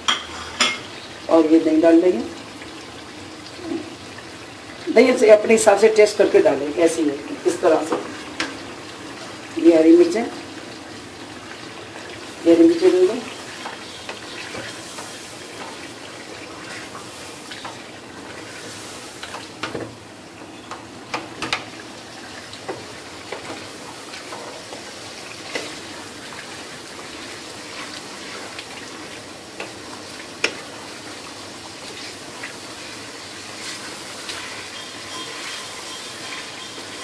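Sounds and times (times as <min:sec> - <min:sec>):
curry sizzling and bubbling: 0:00.0 - 0:37.0
spoon scraping and knocking pan: 0:33.6 - 0:37.0.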